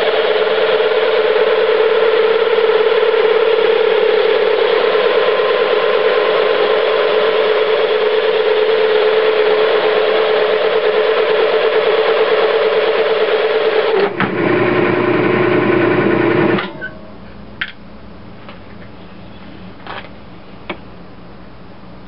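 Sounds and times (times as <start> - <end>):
metal lathe humming: 0.0 - 17.2.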